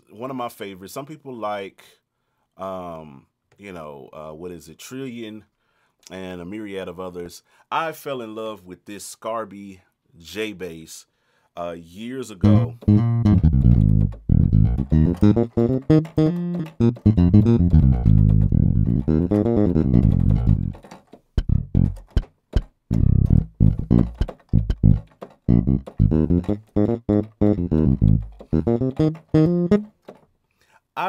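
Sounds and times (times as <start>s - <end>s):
electric bass line: 12.4s - 20.8s, 21.4s - 29.9s.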